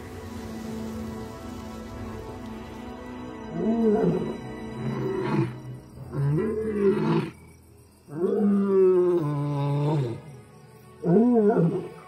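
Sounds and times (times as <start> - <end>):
soft background music: 0.0 - 12.0
lion roaring: 3.6 - 7.4.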